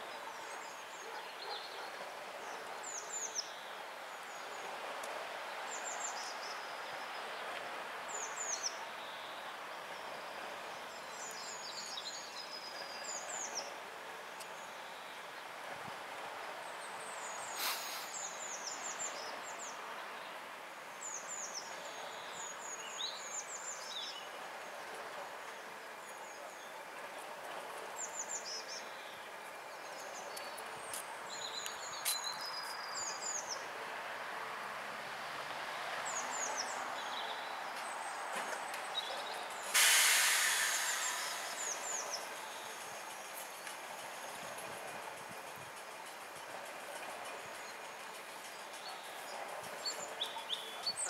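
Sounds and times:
loud hiss of released air: 17.5s - 18.3s, 39.5s - 42.6s
diesel train engine idling: 39.5s - 45.3s
birds chirping: 46.0s - 51.0s.

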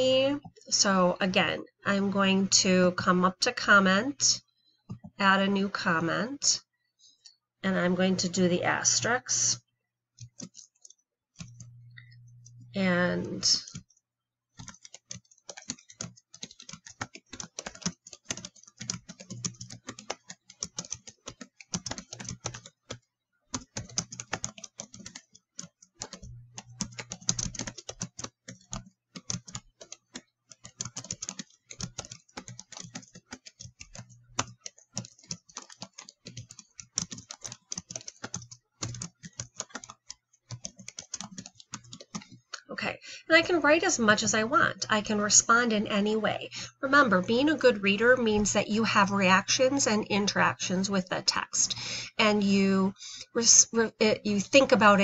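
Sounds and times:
typing on computer keyboard: 10.2s - 12.6s, 13.5s - 42.5s.

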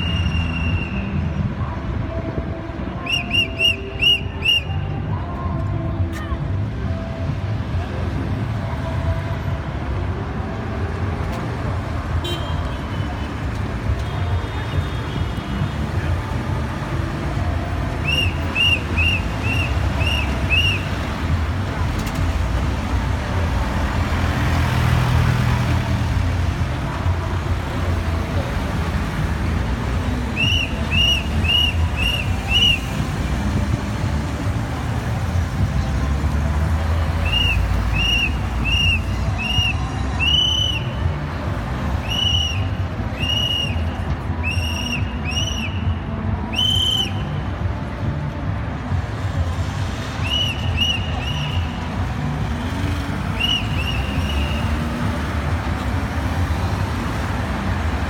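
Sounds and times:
whistle blasts: 0.0s - 1.3s, 3.0s - 5.0s, 18.0s - 20.9s, 30.3s - 33.0s, 37.2s - 41.0s, 42.0s - 47.4s, 50.2s - 51.8s, 53.3s - 55.0s
traffic rumble: 0.0s - 58.0s.

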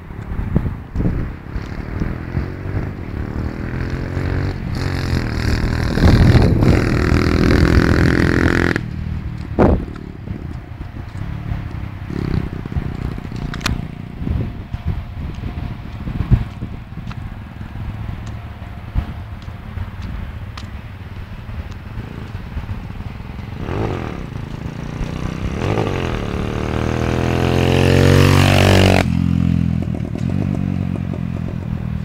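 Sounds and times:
motorcycle engine accelerating: 0.0s - 32.0s
low irregular rumble: 4.4s - 27.5s.

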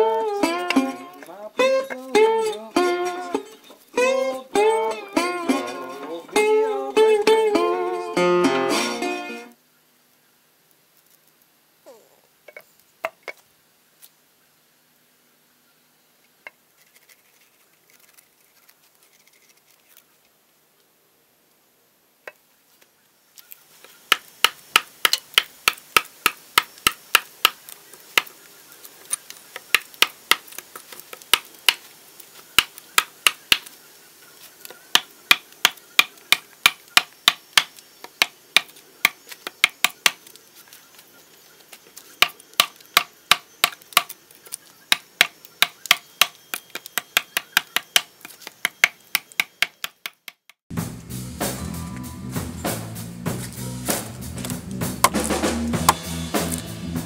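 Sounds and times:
axe chopping wood: 24.1s - 28.3s, 29.6s - 31.8s, 32.6s - 33.7s, 34.9s - 40.3s, 42.2s - 44.2s, 44.9s - 50.6s, 53.4s - 56.6s.

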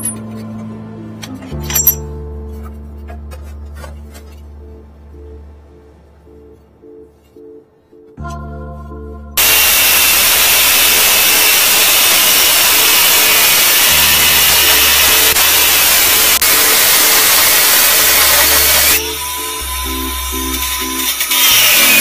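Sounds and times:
electric power tool running: 9.4s - 22.0s.

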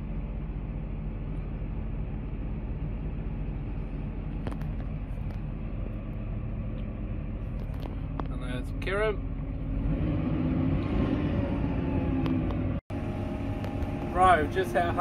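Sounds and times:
tractor engine running: 0.0s - 9.8s, 11.6s - 15.0s.

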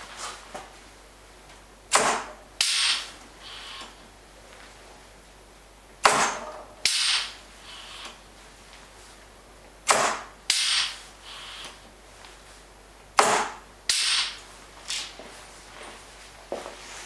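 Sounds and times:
air hissing: 1.9s - 4.0s, 6.0s - 8.2s, 9.9s - 11.8s, 13.2s - 15.2s
pneumatic cylinder cracks: 1.9s - 4.0s, 6.0s - 8.2s, 9.9s - 11.8s, 13.2s - 14.4s.

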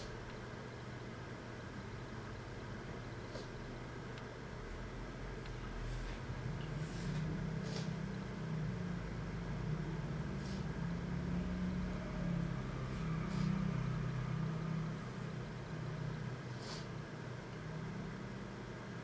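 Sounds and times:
steady low hum: 0.0s - 19.0s
person sniffing: 5.7s - 8.1s, 10.3s - 10.8s, 13.0s - 13.8s, 16.5s - 17.0s.

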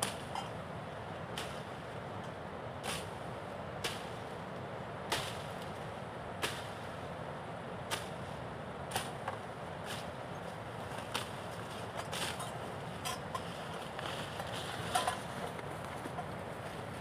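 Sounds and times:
machete chopping brush: 0.0s - 0.3s, 2.8s - 3.2s, 3.8s - 4.2s, 5.1s - 5.7s, 6.4s - 6.8s, 7.9s - 8.2s, 8.9s - 10.2s, 11.0s - 11.4s, 12.1s - 12.6s.

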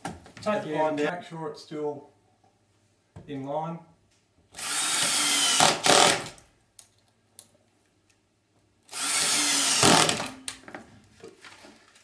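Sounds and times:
power drill driving screws: 4.5s - 6.4s, 8.9s - 10.4s.

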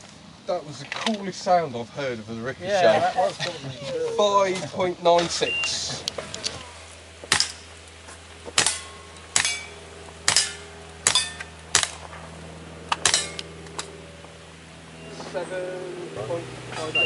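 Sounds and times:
handgun shots: 10.3s - 12.0s
steel plates ringing: 13.0s - 13.6s.

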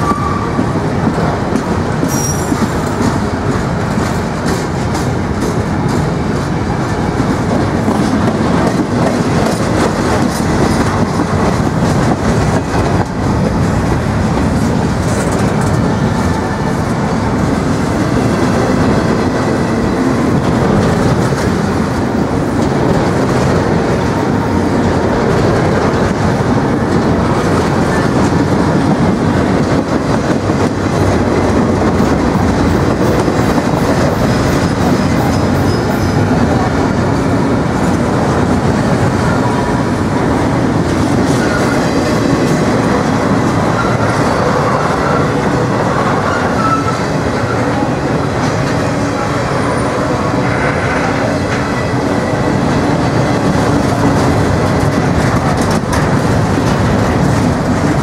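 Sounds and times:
steel wheels rumbling on rail: 0.0s - 58.0s
wheels clicking over rail joints: 52.7s - 58.0s.

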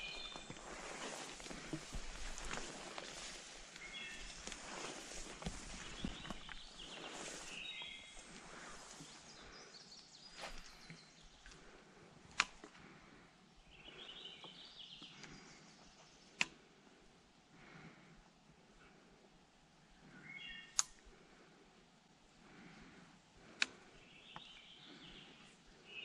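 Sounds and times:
songbird singing: 0.0s - 11.8s, 13.6s - 16.6s, 19.8s - 21.0s, 23.7s - 26.0s
sharp clicks: 12.3s - 12.7s.

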